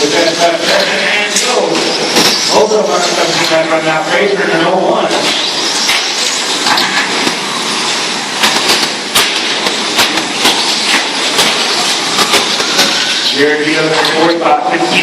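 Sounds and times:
sharp clacks: 5.1s - 7.5s, 8.4s - 13.3s.

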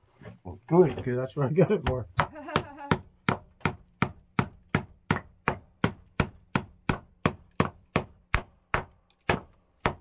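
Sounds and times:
hammer driving nail into wood: 2.9s - 10.0s.

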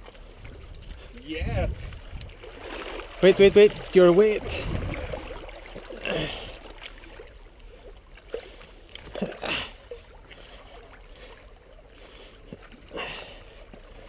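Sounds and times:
water lapping among rocks: 0.0s - 14.0s
brief sharp splashes: 1.9s - 7.4s.

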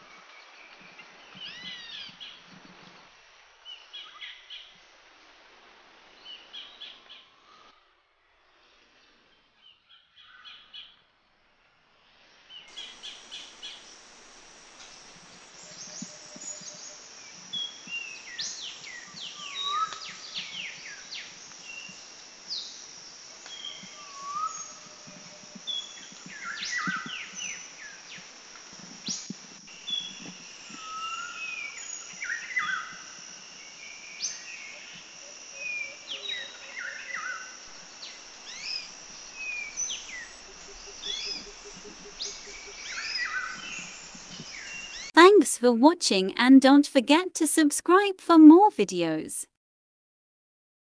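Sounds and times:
steady high hiss: 12.1s - 45.2s.

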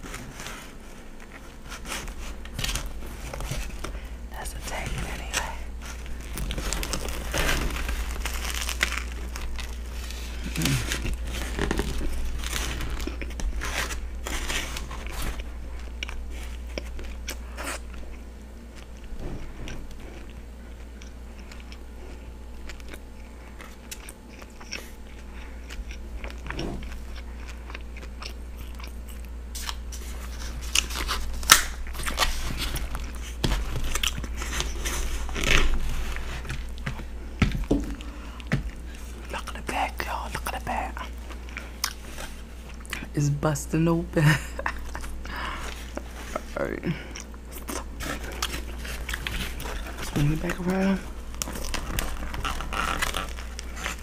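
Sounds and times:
crusty bread roll crunching: 0.0s - 43.1s, 44.5s - 54.0s
wet chewing: 4.7s - 43.1s, 44.6s - 54.0s.

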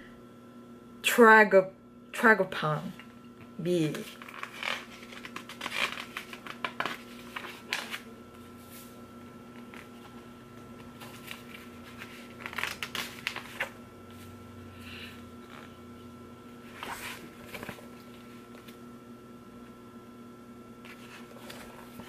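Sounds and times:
faint hum: 0.0s - 22.0s
magazine pages rustling: 3.8s - 14.4s, 16.6s - 18.8s, 20.8s - 22.0s.

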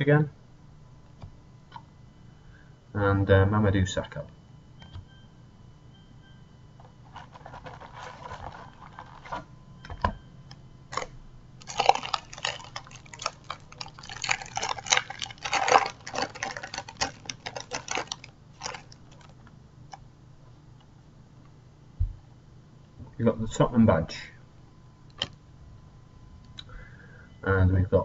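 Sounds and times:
soft rustling: 7.1s - 9.5s
wrapper crinkling: 7.1s - 9.5s, 10.9s - 19.5s.

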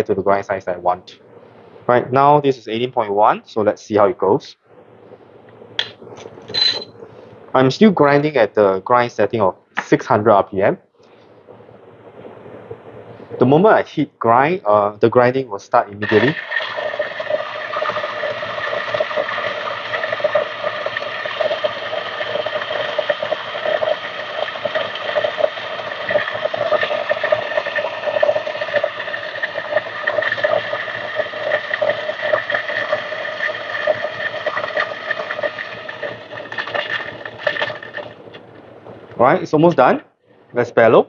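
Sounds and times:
coffee grinder motor hum: 16.0s - 38.1s
beans crackling in grinder: 16.0s - 38.2s.

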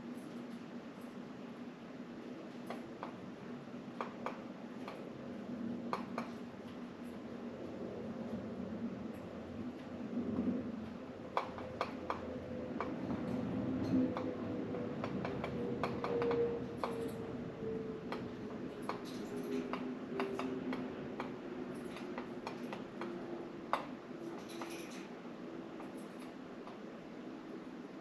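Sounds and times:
birds clicking and tapping on blinds: 3.9s - 5.1s, 5.8s - 7.2s, 10.8s - 17.4s, 18.0s - 27.2s.

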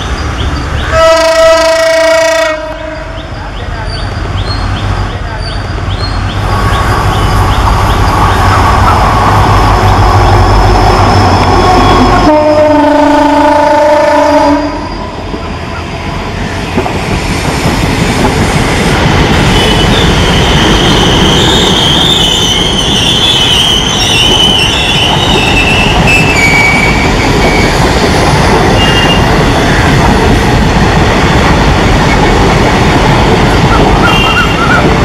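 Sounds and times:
diesel locomotive engine: 0.0s - 35.0s
train rumbling: 0.0s - 35.0s
train horn blast: 0.9s - 3.2s, 11.6s - 15.1s
high wheel squeal: 9.9s - 12.3s, 19.5s - 27.8s, 28.7s - 29.3s, 33.4s - 35.0s.

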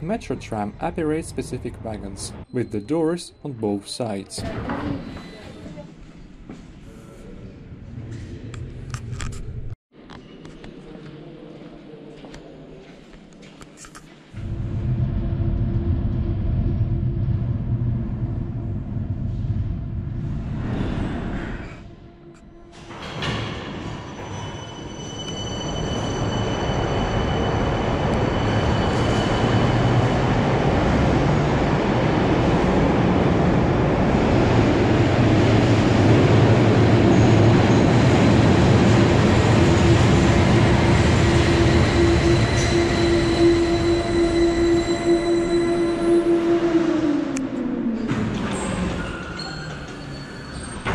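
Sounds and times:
steady wheel whine: 14.4s - 20.7s
tram wheels rumbling on rail: 14.4s - 21.8s, 22.7s - 50.9s.

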